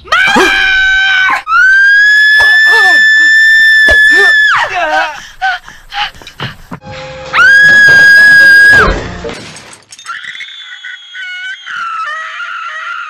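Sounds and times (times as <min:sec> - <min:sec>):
woman screaming: 0:00.0 - 0:05.6, 0:10.7 - 0:13.0
high wavering squeal: 0:10.0 - 0:12.2.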